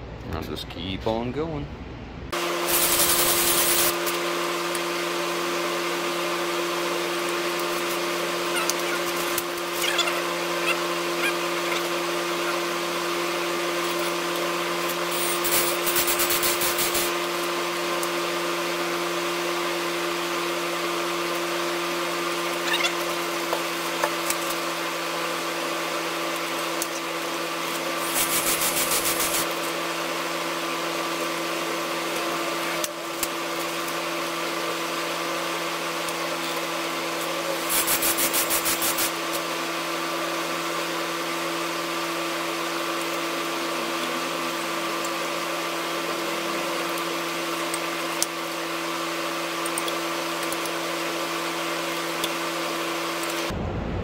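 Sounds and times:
steady background hum: 0.0 - 3.2.

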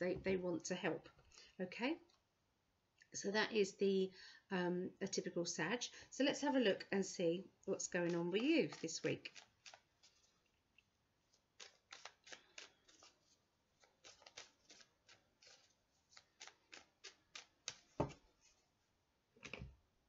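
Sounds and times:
tarot cards being shuffled: 11.3 - 18.4.

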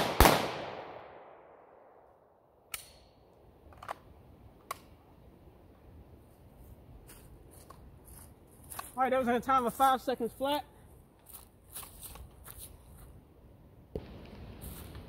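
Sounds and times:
pistol shot echo: 0.0 - 2.2.

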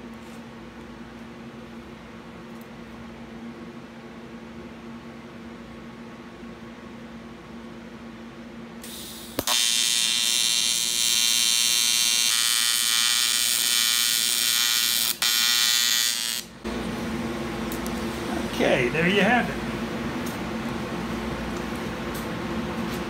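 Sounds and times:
steady hum: 0.0 - 23.0
welder arc striking click: 8.8 - 16.5
welder arc buzzing: 8.8 - 21.8.

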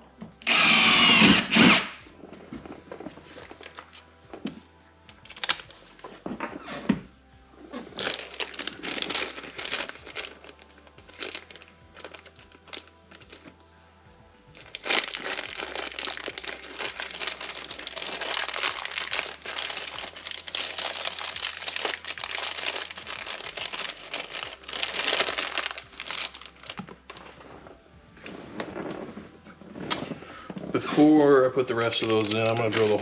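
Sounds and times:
packaging crinkling and rustling: 7.7 - 13.5, 14.6 - 31.1, 31.7 - 33.0.

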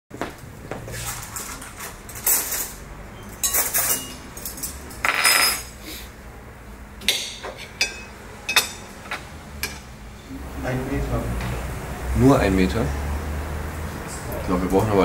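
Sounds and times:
cutlery clinking on a plate: 2.1 - 5.7, 7.0 - 9.9.

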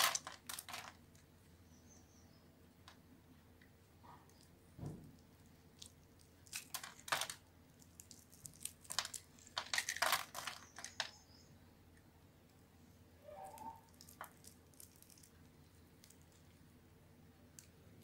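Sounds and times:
soap cubes crunching and crackling: 0.0 - 1.0, 5.2 - 11.2, 13.9 - 16.6.

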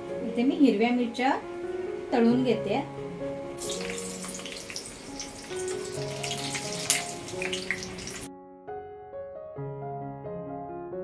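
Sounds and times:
background music: 0.0 - 11.0
chillies sizzling in hot oil: 3.6 - 8.3
oil popping: 3.6 - 8.3.

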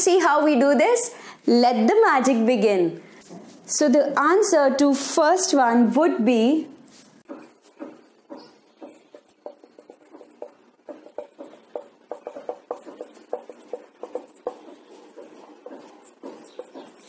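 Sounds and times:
marker pen writing on whiteboard: 6.9 - 17.0.

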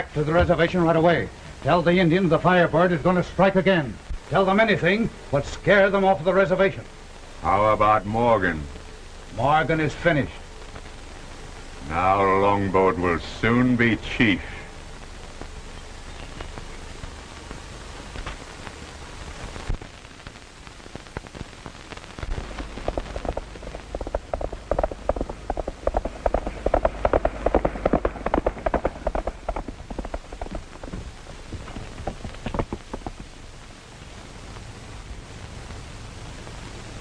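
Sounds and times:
steady hiss: 0.0 - 37.0
rapid clatter of sharp clicks: 22.2 - 33.5.

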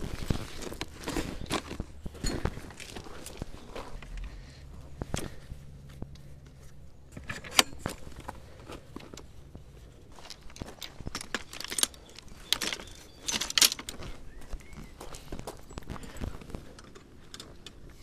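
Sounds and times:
barrow wheels on gravel: 0.0 - 5.5, 7.2 - 18.0
fishing tackle rattling on barrow: 10.2 - 14.0.

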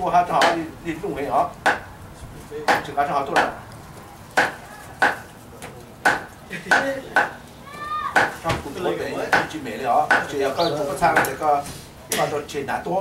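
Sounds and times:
cleaver chopping on wooden block: 0.4 - 0.6, 1.6 - 1.9, 2.7 - 3.6, 4.4 - 5.3, 6.0 - 7.4, 8.2 - 8.6, 9.3 - 10.3, 11.1 - 11.4.

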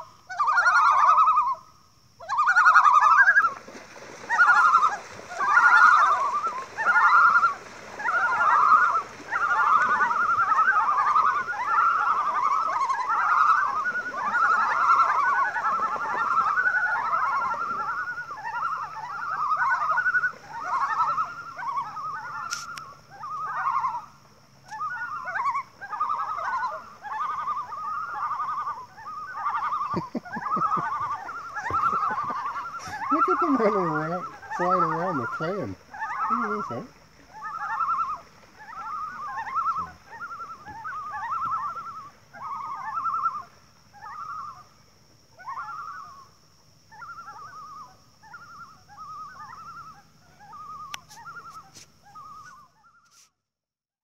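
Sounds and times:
loons calling: 0.0 - 3.6, 4.2 - 53.2.

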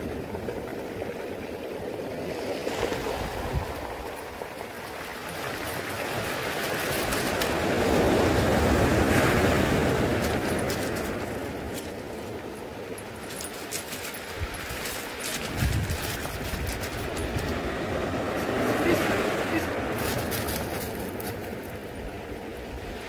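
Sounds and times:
surf washing over pebble beach: 0.0 - 23.0.

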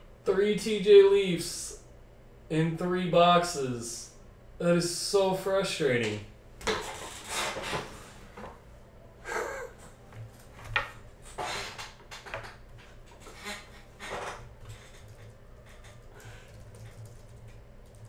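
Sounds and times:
rubbing and handling at a desk: 6.6 - 8.6, 10.5 - 16.0.

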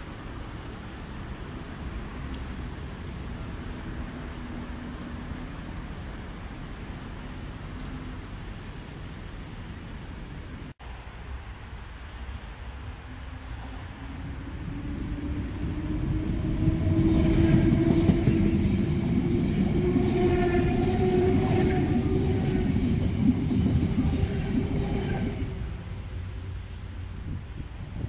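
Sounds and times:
electric train passing: 10.9 - 27.4.

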